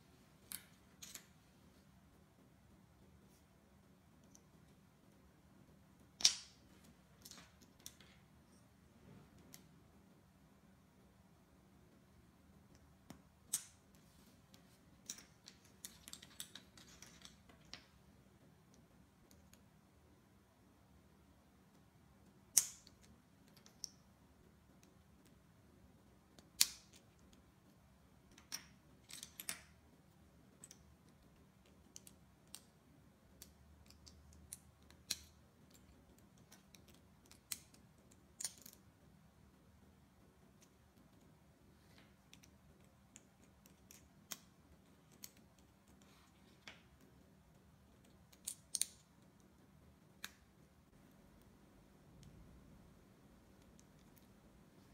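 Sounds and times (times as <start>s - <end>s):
plastic bricks clicking together: 15.0s - 17.9s.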